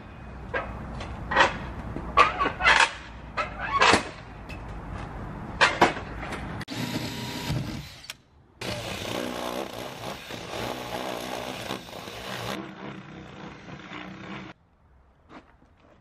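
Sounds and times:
cordless drill boring through wood: 6.7 - 14.5.

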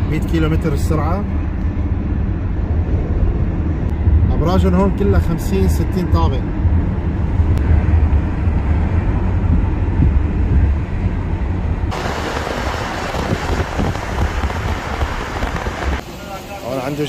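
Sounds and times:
car driving at highway speed: 0.0 - 17.0
hissy rushing noise: 11.9 - 17.0.

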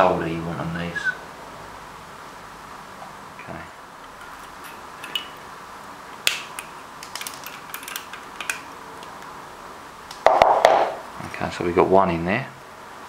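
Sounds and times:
side cutters snipping wire clicks: 6.2 - 9.3.

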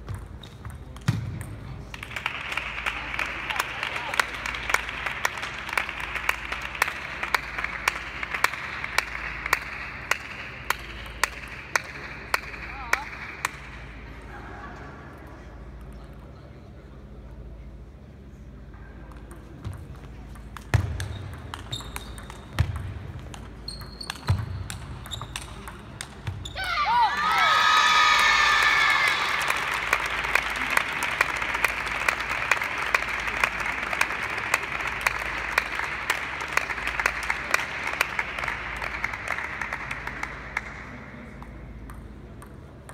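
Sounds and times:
table tennis balls ticking: 0.0 - 2.2, 19.0 - 26.5, 41.3 - 42.9
crowd cheering and applause: 26.6 - 40.1.

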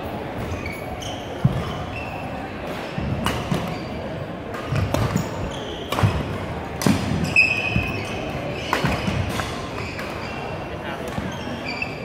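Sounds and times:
sneaker squeaks: 0.3 - 12.0
racket hitting shuttlecock: 4.5 - 10.3.

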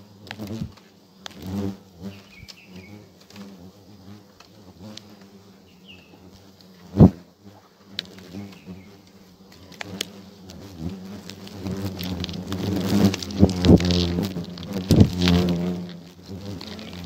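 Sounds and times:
hornets buzzing: 0.0 - 17.0.

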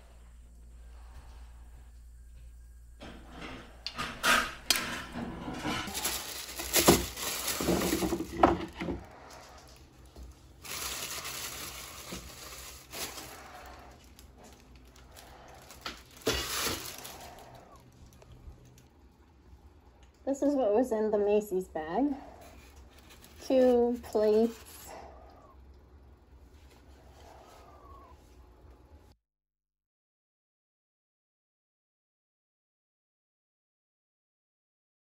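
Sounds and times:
items knocking in cabinet: 4.7 - 9.0
plastic bag rustling: 5.1 - 19.0, 22.1 - 25.1.

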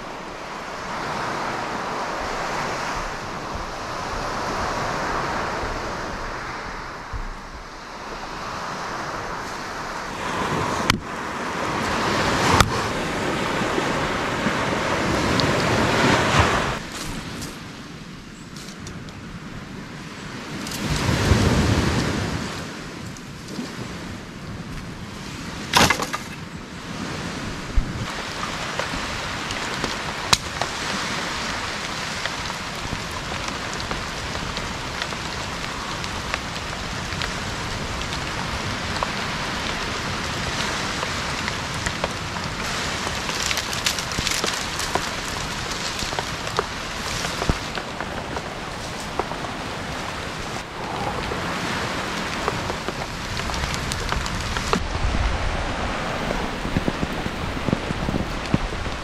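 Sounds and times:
steady rain falling: 0.0 - 59.0
sharp snaps and cracks: 28.3 - 51.4, 52.1 - 55.0.

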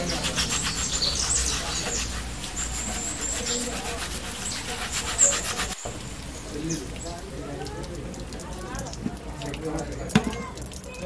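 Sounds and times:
steel wool scrubbing plastic mesh: 0.0 - 5.8
running water: 0.0 - 11.0.

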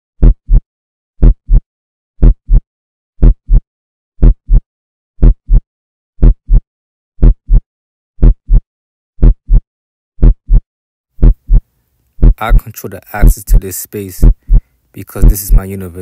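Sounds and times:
heartbeat thumps: 0.2 - 0.6, 1.2 - 1.6, 2.2 - 2.6, 3.2 - 3.6, 4.2 - 4.6, 5.2 - 5.6, 6.2 - 6.6, 7.2 - 7.6, 8.2 - 8.6, 9.2 - 9.6, 10.2 - 10.6, 11.2 - 13.6, 14.2 - 15.6.

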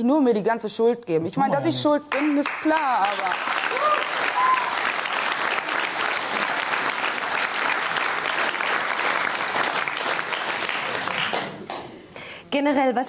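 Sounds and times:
audience applauding: 2.1 - 12.0.

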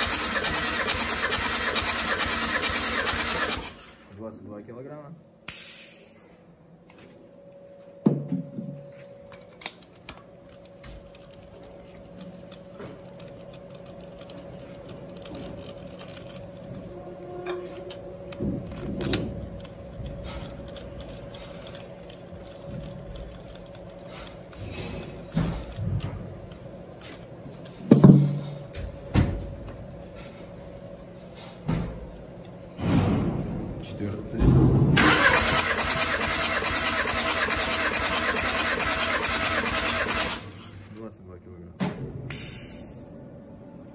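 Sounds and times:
metal clinks and rattles: 10.4 - 16.8.

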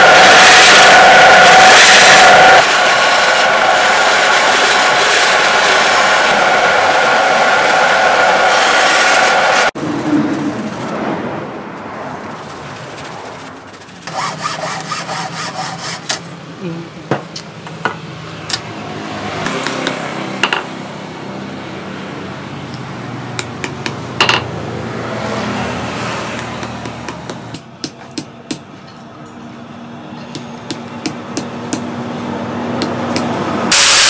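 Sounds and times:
sandpaper rubbing on wood: 12.2 - 16.2.

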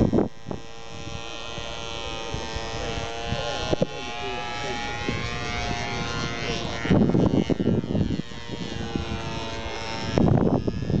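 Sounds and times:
model airplane motor buzzing: 0.0 - 11.0.

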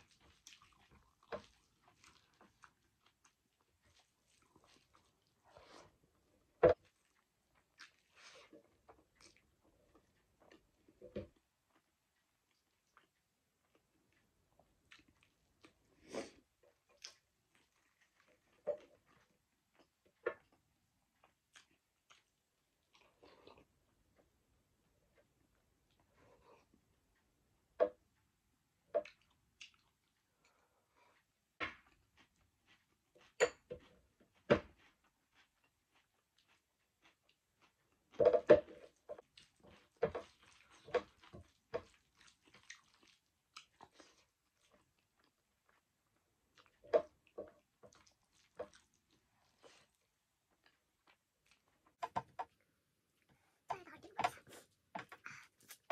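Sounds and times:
chewing and wet mouth smacks: 0.0 - 5.5, 6.8 - 10.7, 14.8 - 20.5, 21.2 - 23.7, 29.0 - 30.6, 39.2 - 52.6.

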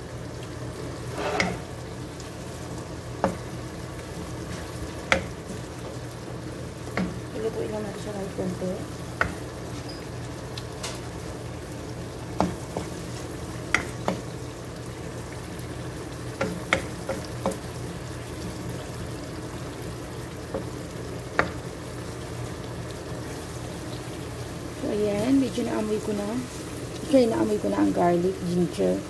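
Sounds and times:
food sizzling in oil: 0.0 - 29.0
wooden spoon scraping a pan: 1.0 - 1.8.

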